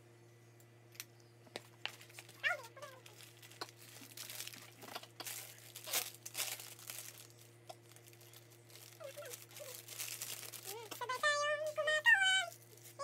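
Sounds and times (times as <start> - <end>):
crinkling and rustling: 1.5 - 13.0.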